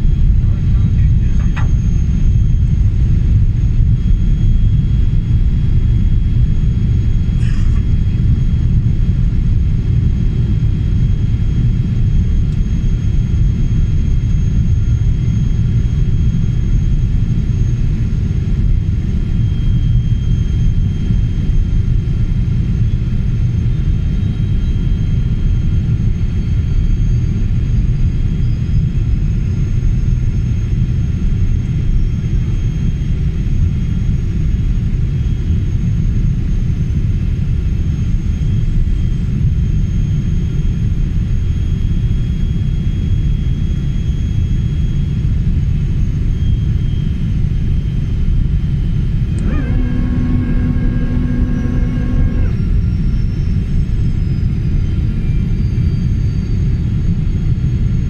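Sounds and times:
airliner cabin rumble: 0.0s - 26.6s, 27.3s - 58.0s
faint high whine: 37.8s - 58.0s.

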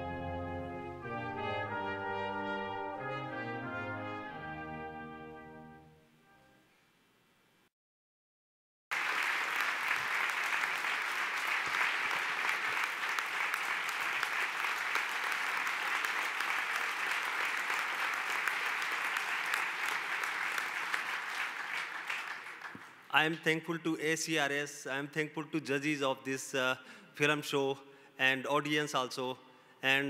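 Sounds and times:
audience applauding: 8.9s - 23.1s.

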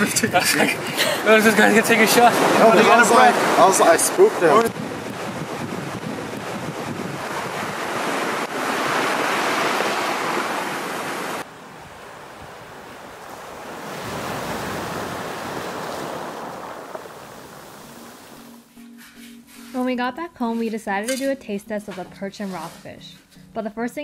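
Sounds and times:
ocean surf on shore: 0.0s - 18.6s
wind on microphone: 3.3s - 18.5s.

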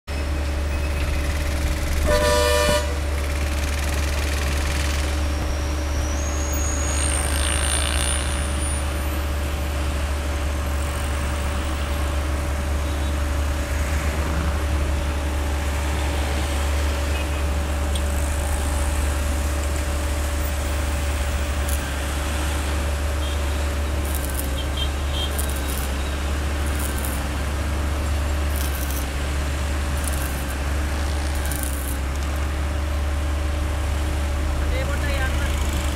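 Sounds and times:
road traffic hum: 0.0s - 35.9s
vehicle horn honking: 2.0s - 3.0s, 23.2s - 23.6s, 24.4s - 26.1s.

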